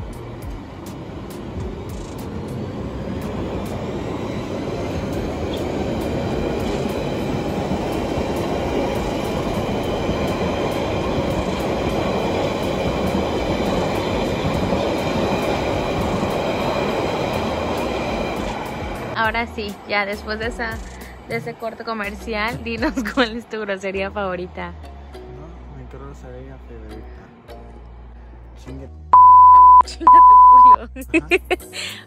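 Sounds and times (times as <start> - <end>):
train wheels rumbling on rails: 0.0 - 23.3.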